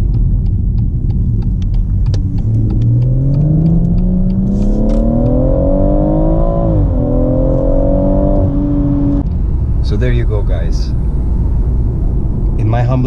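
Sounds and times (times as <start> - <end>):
light ticking: 0.0 - 5.4
car engine revving: 0.0 - 13.0.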